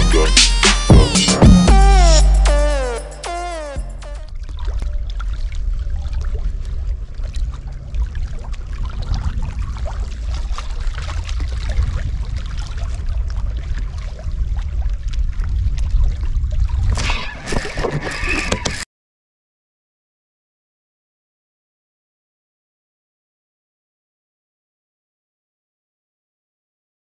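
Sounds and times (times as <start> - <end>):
wind rumbling on microphone: 4.3 - 18.8.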